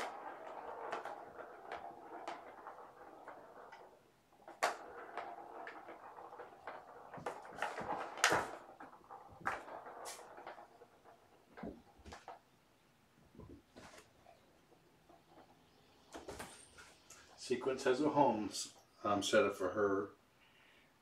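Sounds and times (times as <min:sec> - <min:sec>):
balls clicking on plastic tracks: 0:00.0 - 0:18.9
soft rustling: 0:13.3 - 0:17.6.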